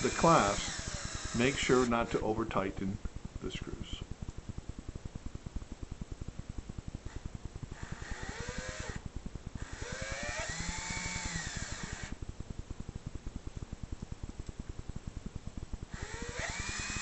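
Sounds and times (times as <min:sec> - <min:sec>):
cordless drill driving screws: 0:00.0 - 0:02.2, 0:09.7 - 0:12.2, 0:16.0 - 0:17.0.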